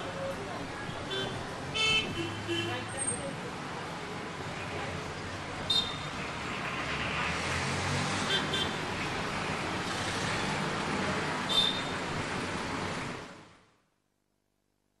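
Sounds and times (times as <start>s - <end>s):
passing vehicle engines and road noise: 0.0s - 13.8s.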